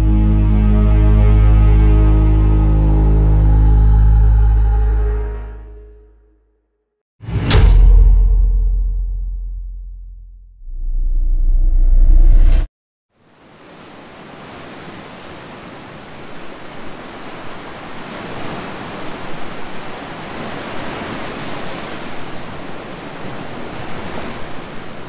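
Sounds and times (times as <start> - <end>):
deep rumble: 7.2 - 12.7
sea surf washing: 13.3 - 25.0.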